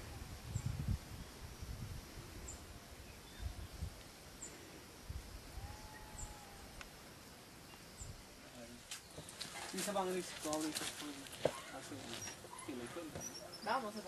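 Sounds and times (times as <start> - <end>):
wind rumble on microphone: 0.0 - 4.0
faint bird chirps: 5.4 - 6.8.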